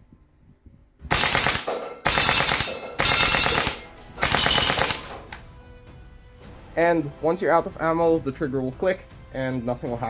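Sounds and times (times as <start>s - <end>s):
airsoft rifle firing bursts: 1.1s - 5.3s.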